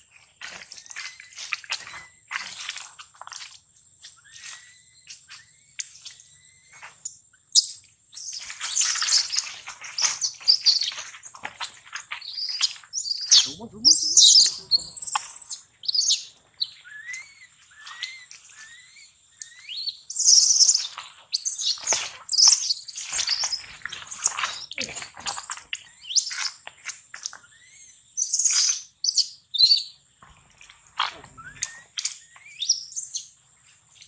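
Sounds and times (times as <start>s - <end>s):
baby monkey screaming: 12.4s - 16.1s.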